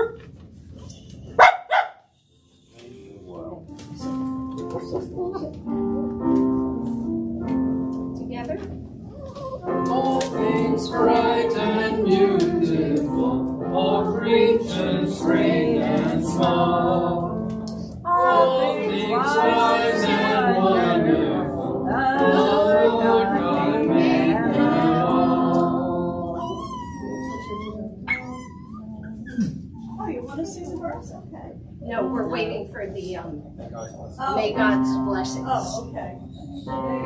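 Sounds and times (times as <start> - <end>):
dog whimpering: 9.1 - 9.8, 26.4 - 30.1
congregation singing a hymn: 9.6 - 27.3.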